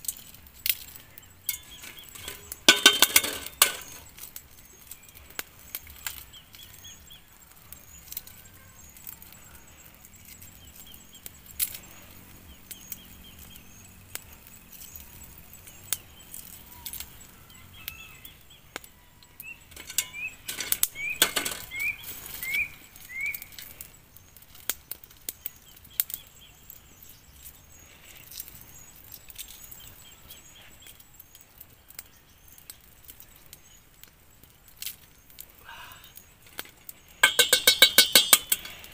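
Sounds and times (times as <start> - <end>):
birds chirping: 0.1 - 38.9
shell clinking against steel bowl: 1.5 - 4.0, 19.7 - 21.6, 37.2 - 38.9.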